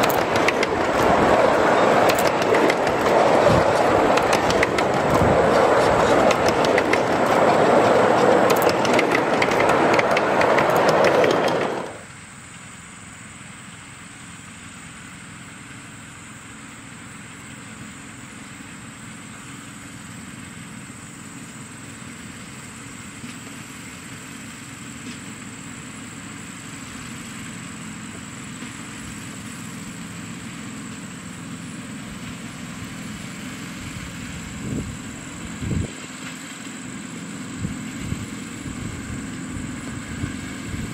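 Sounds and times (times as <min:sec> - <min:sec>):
miniature train wheels clattering: 0:00.0 - 0:12.7
distant train low hum: 0:00.0 - 0:40.9.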